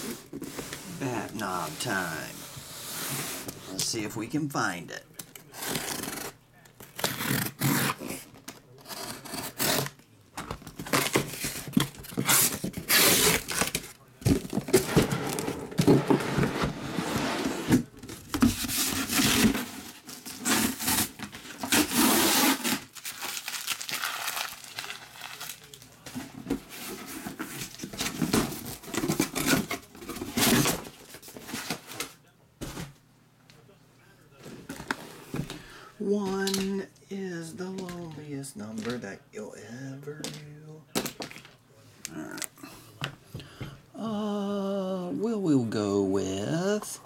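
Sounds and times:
cardboard rustling and scraping: 0.0 - 3.8, 5.5 - 23.7, 25.4 - 33.0
packing tape tearing: 5.5 - 10.0, 10.6 - 15.5, 18.1 - 25.9.

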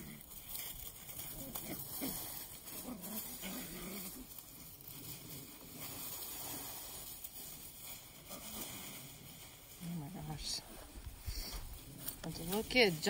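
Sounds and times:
puppies rustling in dry leaves: 0.0 - 13.0.

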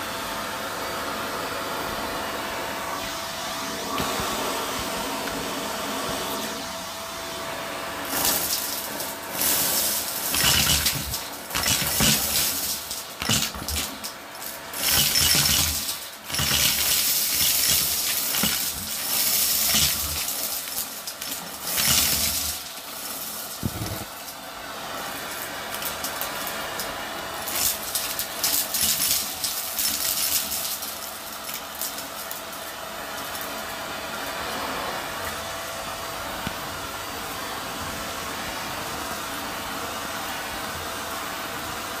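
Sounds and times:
vacuum cleaner suction drone: 0.0 - 42.0
debris clattering up a hose: 8.0 - 24.4, 25.3 - 33.6.

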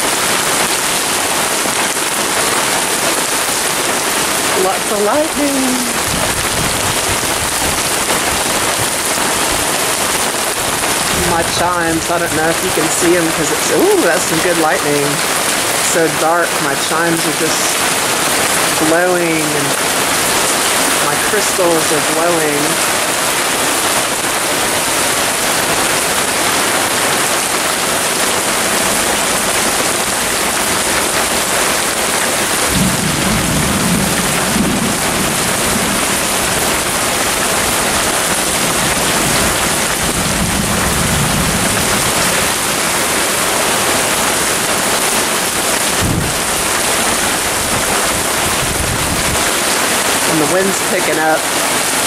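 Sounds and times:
heavy rain pouring: 0.0 - 52.0
low thunder rumbles: 5.9 - 12.8, 32.4 - 44.7, 45.4 - 49.5.

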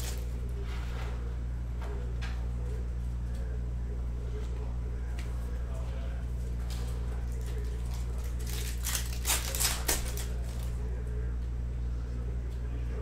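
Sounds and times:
low electrical hum: 0.0 - 13.0
cellophane wrapper crinkling: 7.3 - 10.8.

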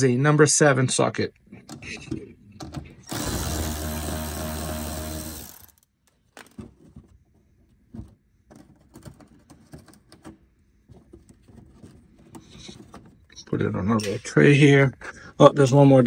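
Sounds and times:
power ratchet motor spinning: 3.0 - 5.9.

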